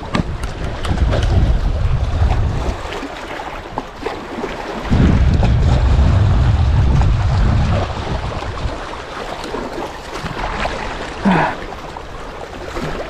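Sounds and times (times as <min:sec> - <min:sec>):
wind buffeting microphone: 0:00.0 - 0:04.1, 0:04.8 - 0:09.5
sea waves on rocky shore: 0:00.0 - 0:13.0.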